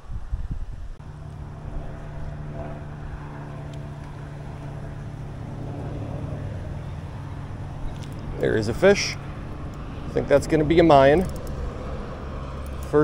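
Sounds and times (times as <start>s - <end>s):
engine droning: 1.0s - 13.0s.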